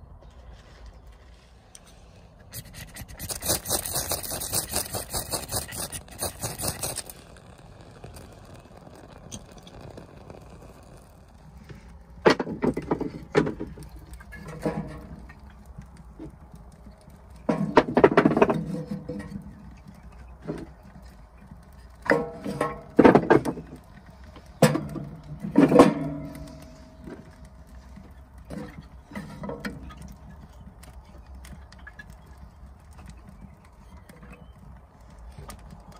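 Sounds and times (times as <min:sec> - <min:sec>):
dense crackling: 0:02.4 - 0:18.5.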